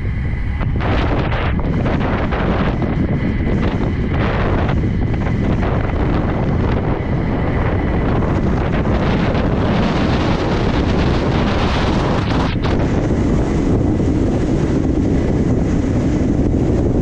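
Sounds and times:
wheels rumbling on asphalt: 0:00.0 - 0:17.0
wind buffeting microphone: 0:00.0 - 0:17.0.

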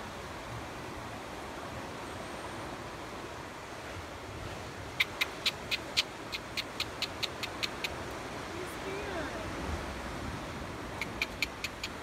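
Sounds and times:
marmoset chirping: 0:05.0 - 0:08.0, 0:11.0 - 0:12.0.

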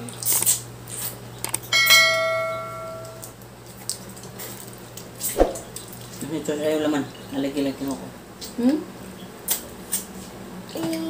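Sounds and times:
clicks and knocks of eating: 0:00.0 - 0:01.7, 0:03.0 - 0:06.3
tableware ringing when struck: 0:01.7 - 0:03.2.

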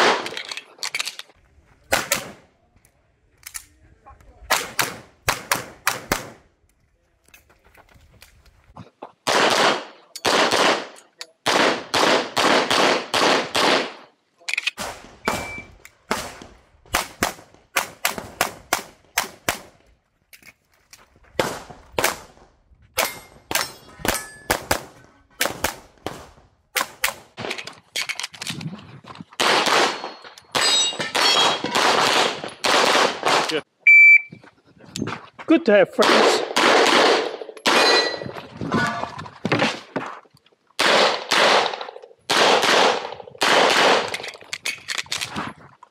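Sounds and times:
pistol shots: 0:04.5 - 0:06.4, 0:09.3 - 0:14.0, 0:29.4 - 0:33.6, 0:36.0 - 0:38.2, 0:40.8 - 0:44.2.

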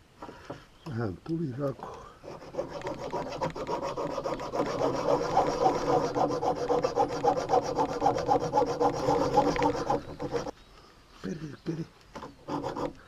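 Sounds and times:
file rasping on metal rod: 0:02.3 - 0:10.5, 0:12.4 - 0:13.0.

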